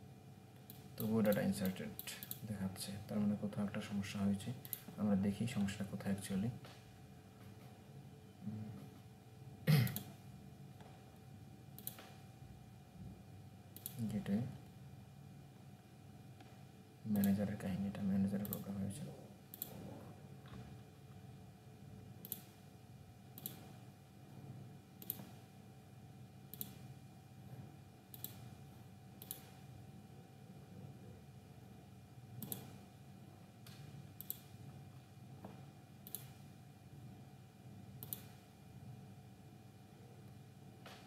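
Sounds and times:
faint steady hum: 0:00.0 - 0:41.0
computer mouse clicking: 0:00.6 - 0:02.4, 0:04.6 - 0:05.0, 0:09.9 - 0:10.2, 0:11.8 - 0:12.2, 0:13.8 - 0:14.1, 0:16.4 - 0:17.4, 0:18.4 - 0:18.7, 0:19.5 - 0:19.8, 0:22.2 - 0:22.6, 0:23.4 - 0:23.8, 0:25.0 - 0:25.4, 0:26.5 - 0:26.9, 0:28.1 - 0:28.5, 0:29.2 - 0:29.6, 0:32.4 - 0:32.8, 0:33.6 - 0:34.6, 0:36.0 - 0:36.4, 0:38.0 - 0:38.4.

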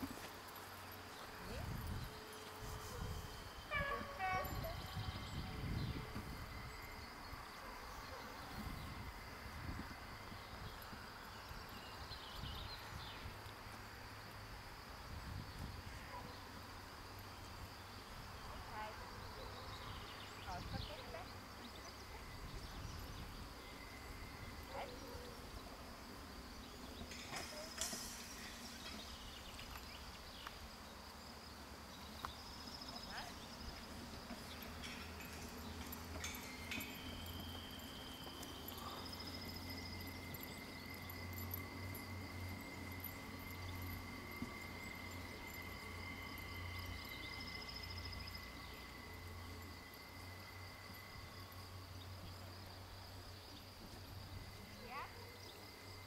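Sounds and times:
insects chirring: 0:00.0 - 0:56.0
faint distant sounds: 0:15.9 - 0:56.0.

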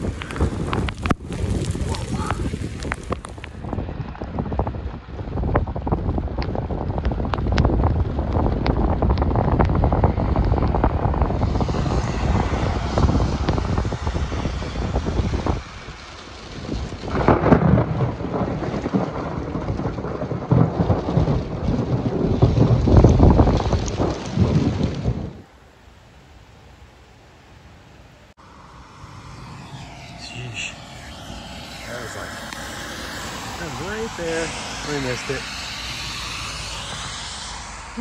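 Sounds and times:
raindrops ticking on microphone: 0:00.0 - 0:11.0, 0:15.7 - 0:25.4
thunder rolling: 0:00.0 - 0:25.4, 0:28.4 - 0:38.0
heavy rain: 0:00.0 - 0:26.0, 0:29.7 - 0:38.0
wind rumbling on microphone: 0:00.0 - 0:38.0.

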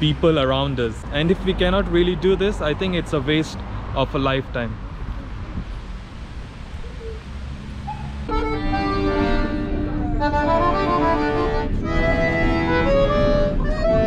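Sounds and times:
piano accordion playing chords: 0:08.3 - 0:14.0.

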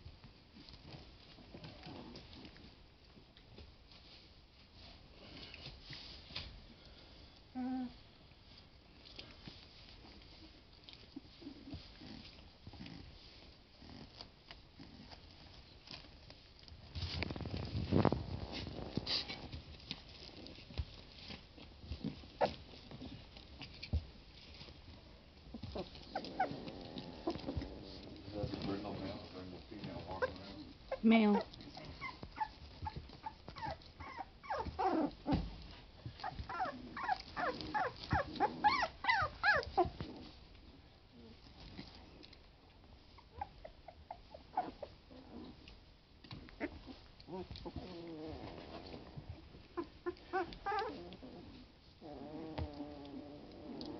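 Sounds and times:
puppy paws scratching and patting: 0:00.0 - 0:07.0, 0:08.3 - 0:53.9
puppies squeaking: 0:25.7 - 0:27.7, 0:30.0 - 0:35.2, 0:36.2 - 0:40.0, 0:49.7 - 0:51.2.

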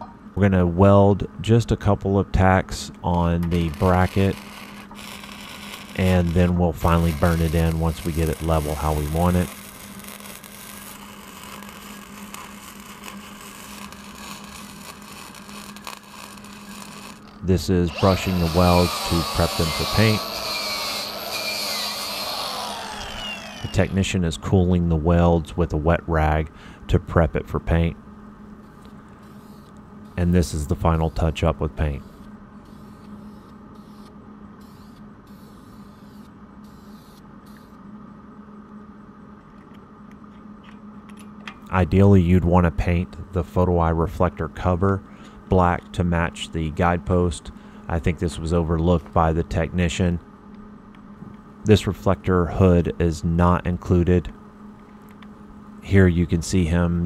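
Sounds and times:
low hum: 0:00.0 - 0:32.8
welding arc crackling hiss: 0:03.4 - 0:24.1.

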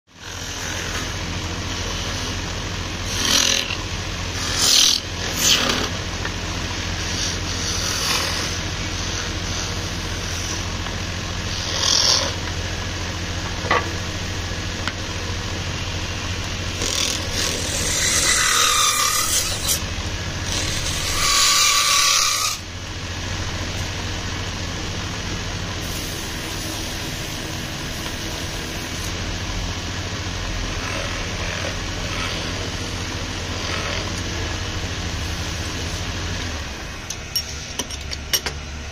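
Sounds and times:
wood lathe motor hum: 0:00.1 - 0:37.2
turning tool scraping wood: 0:00.2 - 0:12.6, 0:16.7 - 0:22.7, 0:30.6 - 0:34.6.

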